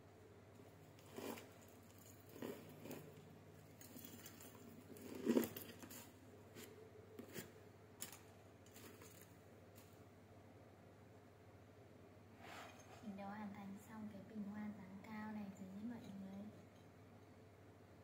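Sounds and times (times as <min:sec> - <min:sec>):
flower stems rustling and crinkling: 0:01.2 - 0:06.7.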